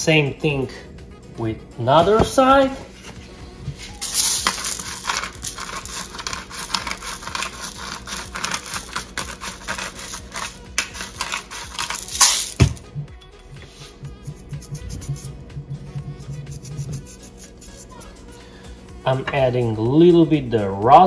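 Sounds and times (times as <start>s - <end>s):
pepper mill grinding: 4.0s - 12.8s, 14.2s - 15.3s, 16.2s - 18.2s.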